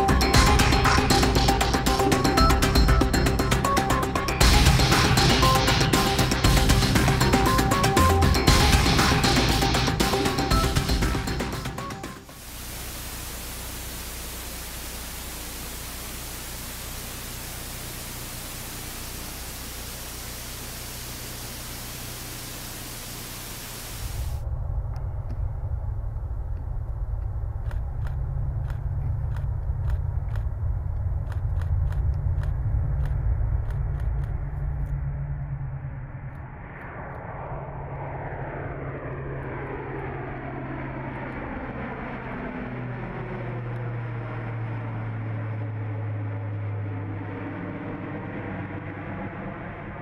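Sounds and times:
low propeller drone: 0.0 - 50.0
steady hiss: 12.3 - 24.4
scattered clicks: 26.5 - 35.1.

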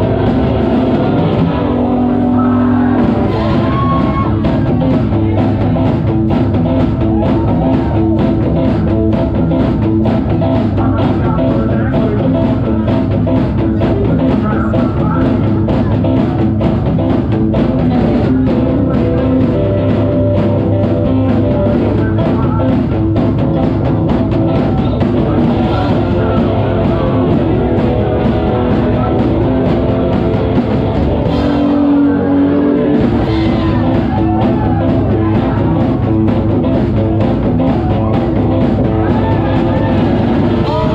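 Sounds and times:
live rockabilly band playing: 0.0 - 40.9.

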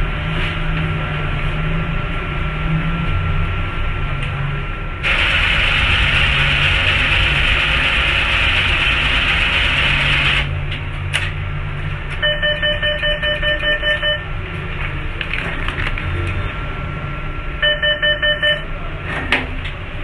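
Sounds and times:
loud steady hiss: 5.0 - 10.5
atm electronic beeps: 12.2 - 14.4, 17.6 - 18.7.

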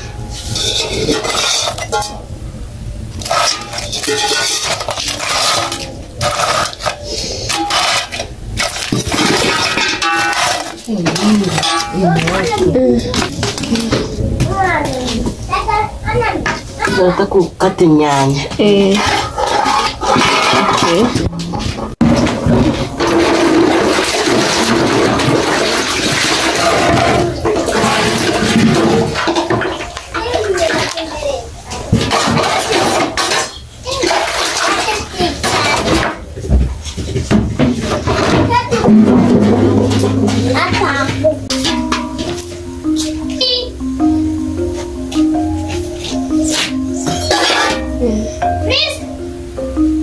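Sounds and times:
metal pot and utensils clattering: 0.0 - 2.4, 3.1 - 15.4, 16.2 - 43.8, 44.6 - 48.8
water splashing in a pot: 23.0 - 31.0.

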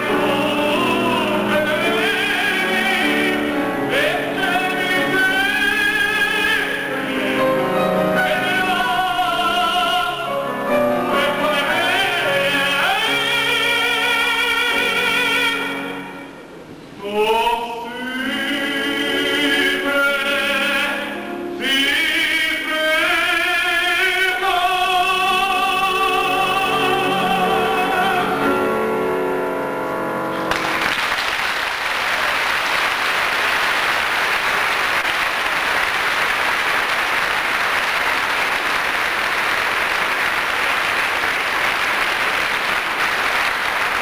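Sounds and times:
man singing opera with vibrato: 0.0 - 29.8
piano accompaniment: 0.0 - 44.0
audience applauding: 30.4 - 44.0.

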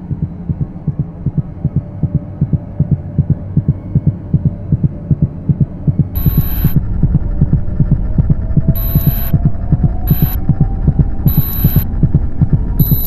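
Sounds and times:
rapid low thumps: 0.0 - 13.0
steady low drone: 0.0 - 13.0
harsh high static burst: 6.2 - 7.8, 8.8 - 9.4, 10.1 - 10.4, 11.3 - 11.9, 12.8 - 13.0.

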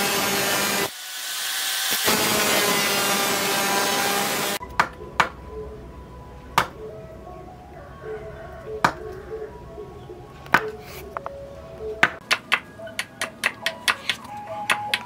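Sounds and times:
light background music: 4.6 - 15.0
blade chopping bamboo: 6.6 - 6.8.

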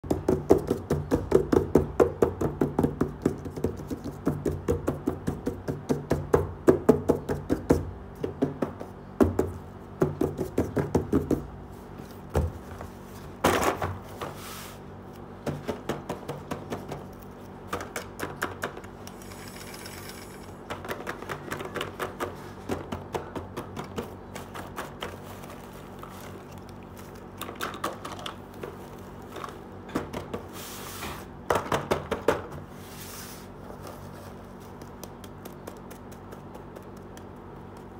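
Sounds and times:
fingers tapping on cardboard: 0.0 - 11.5, 34.7 - 37.9.

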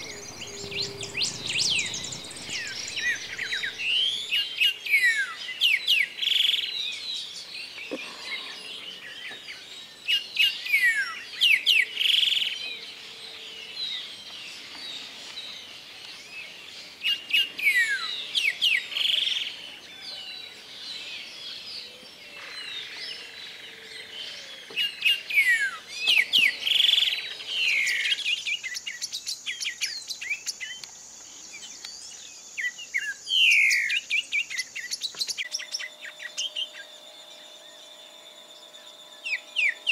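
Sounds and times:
high-pitched hiss: 0.0 - 5.4
bird singing whistled notes: 0.0 - 7.8, 9.0 - 12.8, 13.6 - 22.0, 24.0 - 39.9.

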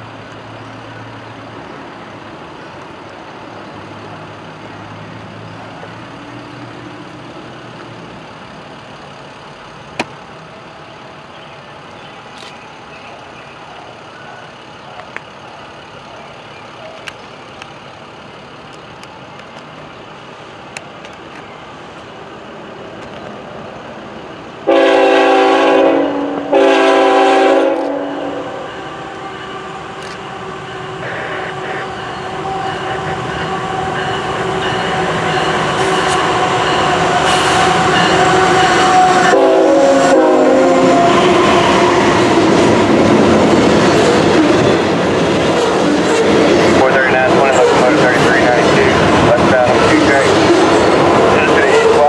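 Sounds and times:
train rumbling: 0.0 - 52.0
train horn blasts: 24.7 - 42.4.

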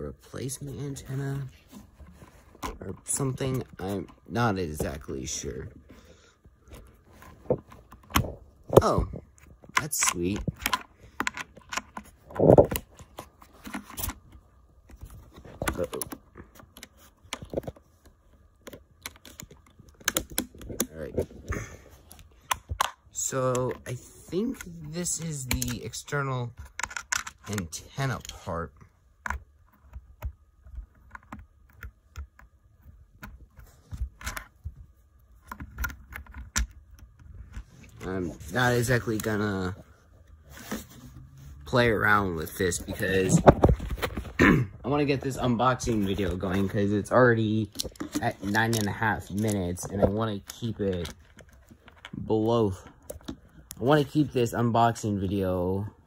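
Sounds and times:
plastic accessories clicking and rattling: 6.6 - 28.4, 47.6 - 53.8
small plastic parts clicking: 15.6 - 20.9, 26.6 - 28.4.

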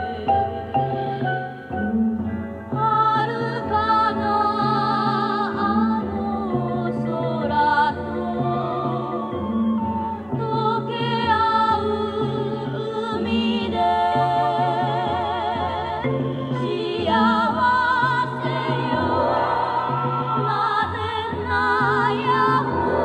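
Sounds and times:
instrumental backing: 0.0 - 23.0
high voice singing with vibrato: 2.7 - 23.0.

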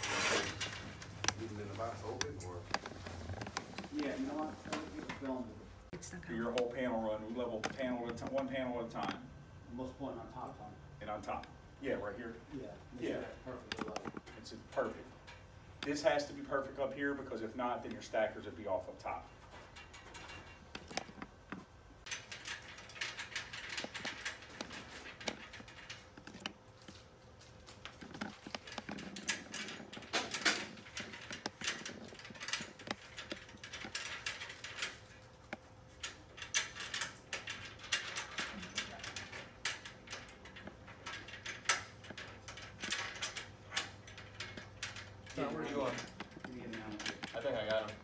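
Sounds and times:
metal clicks and scraping: 13.5 - 48.0.

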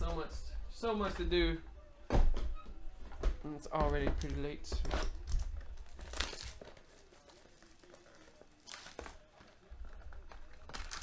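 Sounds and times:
foil packs and packaging crinkling: 5.0 - 11.0.

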